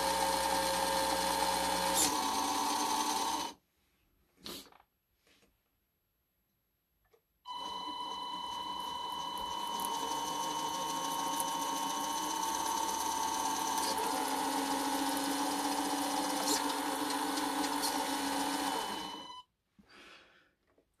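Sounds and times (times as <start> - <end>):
whirring gear whine: 7.5 - 19.4.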